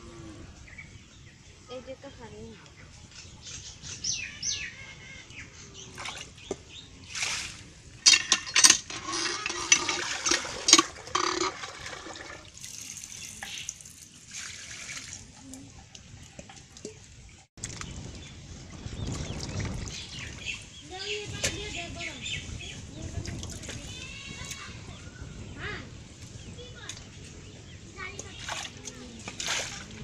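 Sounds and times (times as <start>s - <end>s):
water gushing from hand pump: 7.1s - 15.5s, 29.3s - 30.0s.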